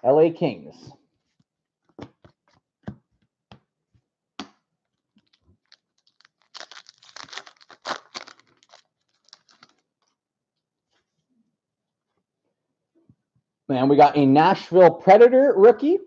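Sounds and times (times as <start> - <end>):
foil pack crinkling and tearing: 5.2 - 9.9.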